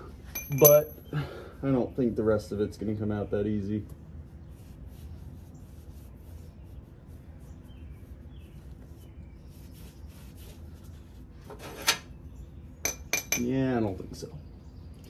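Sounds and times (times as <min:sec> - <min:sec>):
steady low hum: 0:00.0 - 0:15.0
hand tool and bolt clicks: 0:00.4 - 0:00.9.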